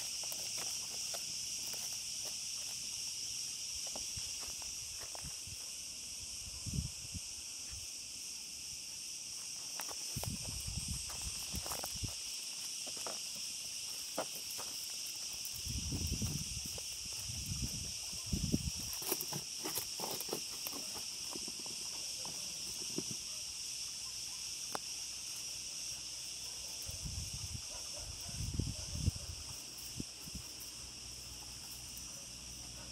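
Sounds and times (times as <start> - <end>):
high-pitched insect chorus: 0.0 - 32.9
footsteps on gravel: 9.4 - 15.5.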